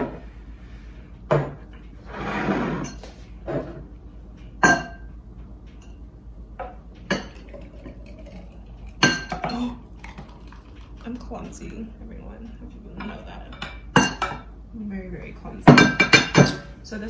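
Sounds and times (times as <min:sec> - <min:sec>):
glass jars clinking: 0:07.1 - 0:10.5.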